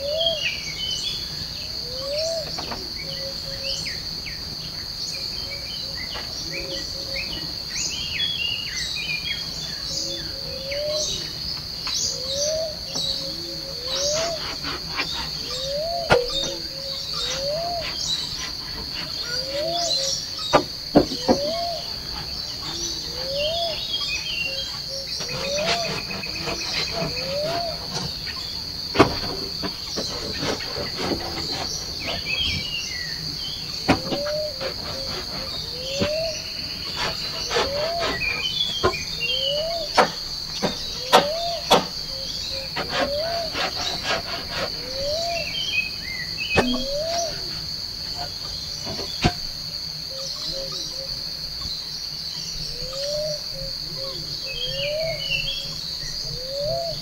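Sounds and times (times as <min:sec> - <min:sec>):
insects trilling: 0:00.0 - 0:57.0
small high chirps: 0:46.5 - 0:47.6
low rising call: 0:46.6 - 0:47.6.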